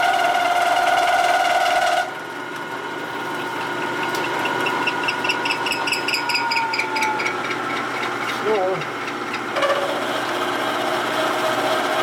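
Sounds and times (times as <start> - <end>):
milling machine whine: 0.0 - 12.0.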